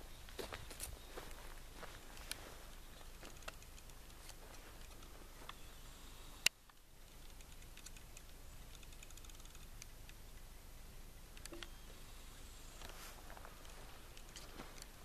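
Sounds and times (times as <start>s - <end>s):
footsteps through undergrowth: 0.0s - 3.4s, 4.2s - 5.6s, 12.8s - 15.0s
sharp click: 11.3s - 11.8s.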